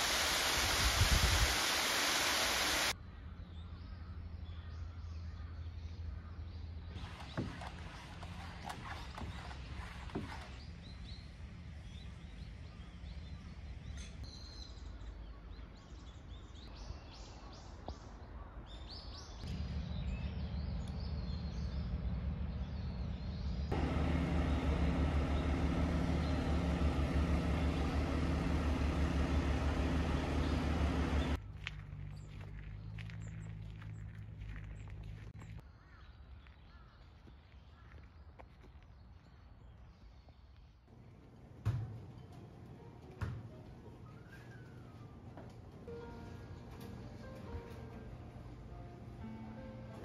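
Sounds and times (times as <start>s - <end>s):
birds chirping: 2.2s - 49.7s
steady machine hum: 21.9s - 31.4s.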